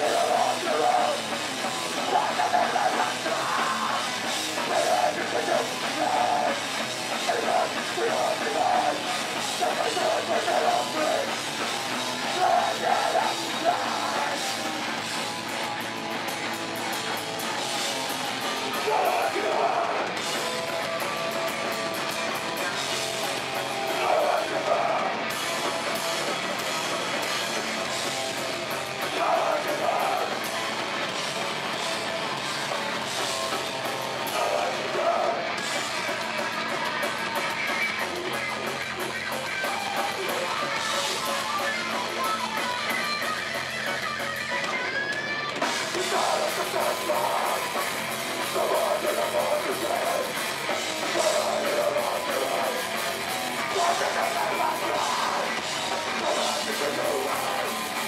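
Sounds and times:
person singing: 0:00.0 - 0:11.4, 0:12.2 - 0:14.6, 0:18.7 - 0:20.2, 0:23.9 - 0:25.2, 0:29.0 - 0:30.6, 0:34.2 - 0:35.6, 0:39.6 - 0:58.0
bass guitar: 0:00.0 - 0:58.0
distorted electric guitar: 0:00.0 - 0:58.0
drum kit: 0:00.0 - 0:58.0.

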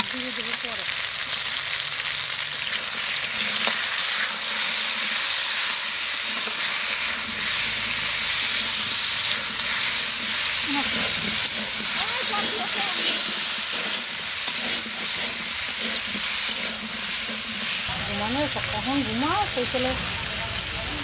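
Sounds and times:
vegetables sizzling in hot oil: 0:00.0 - 0:21.0
metal spatula scraping pan: 0:06.2 - 0:17.9.

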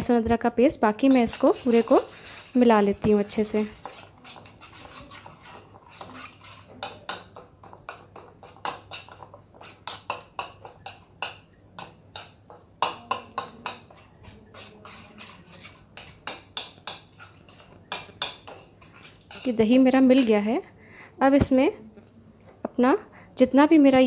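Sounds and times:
hand mixing wet marinade: 0:00.9 - 0:07.3, 0:08.4 - 0:20.5.

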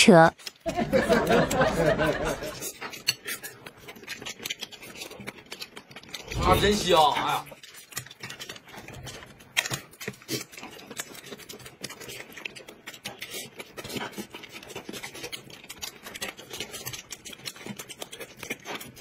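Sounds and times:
chewing and lip smacks: 0:00.4 - 0:19.0
small clicks and rustles: 0:02.5 - 0:06.4, 0:07.0 - 0:19.0.

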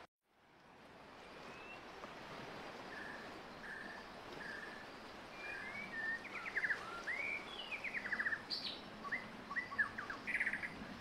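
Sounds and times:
faint outdoor hiss: 0:00.3 - 0:11.0
bird singing: 0:05.4 - 0:10.8.

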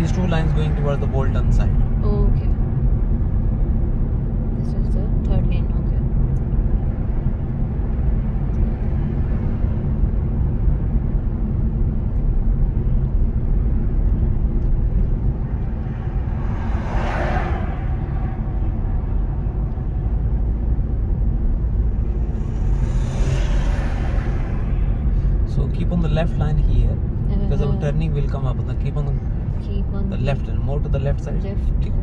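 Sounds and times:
car engine and tyre rumble: 0:00.0 - 0:32.0
rushing noise: 0:14.8 - 0:28.2.

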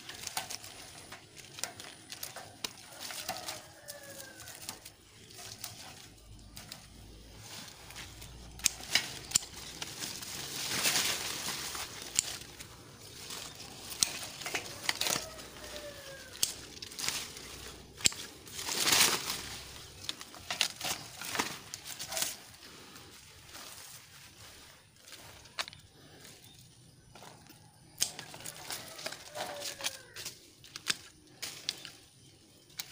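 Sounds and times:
leaves and branches rustling: 0:00.0 - 0:32.9
sharp clicks: 0:08.3 - 0:09.9.

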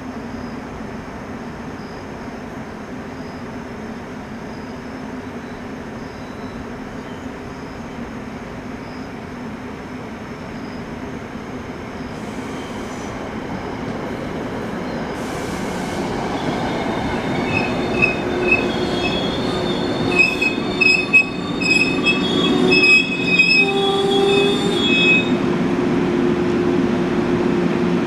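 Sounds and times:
train rumbling past: 0:00.1 - 0:28.0
high metallic brake squeals: 0:17.2 - 0:25.4.

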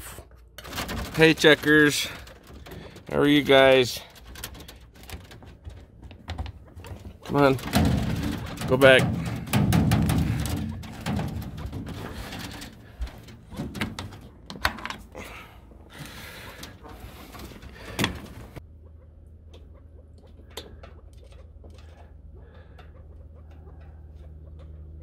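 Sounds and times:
wire cage door clattering: 0:00.6 - 0:05.6, 0:06.3 - 0:15.0.

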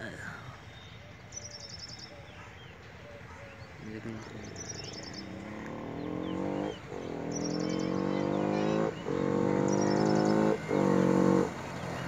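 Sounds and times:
bird chirping: 0:00.0 - 0:12.0
motorcycle engine accelerating: 0:04.1 - 0:12.0.

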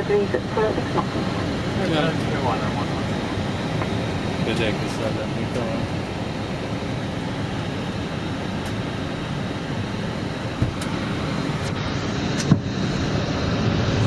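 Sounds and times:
aircraft engine noise: 0:00.0 - 0:14.0
airflow in cockpit: 0:00.0 - 0:14.0.

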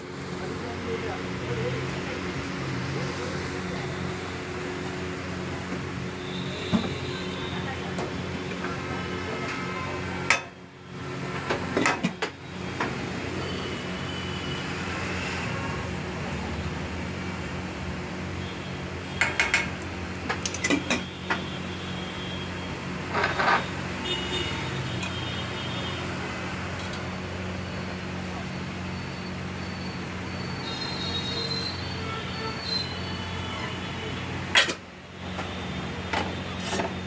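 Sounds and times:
metal utensils clinking on pots: 0:19.2 - 0:21.1.

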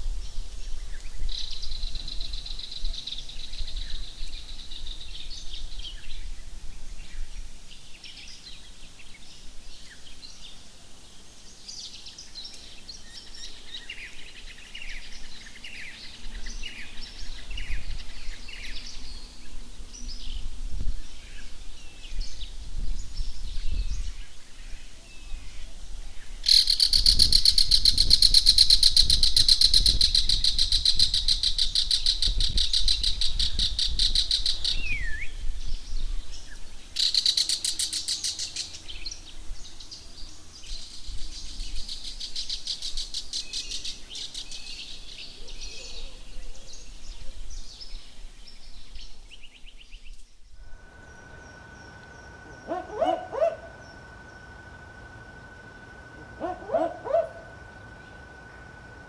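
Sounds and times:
fast-pulsing high buzzing call: 0:50.6 - 0:59.0
owl barking: 0:52.5 - 0:54.0, 0:56.2 - 0:57.8.

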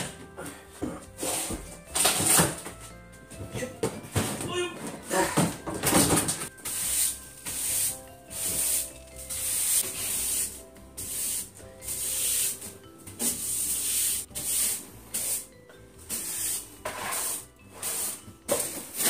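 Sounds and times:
broom sweeping wooden floor: 0:01.2 - 0:02.8, 0:06.5 - 0:19.0.

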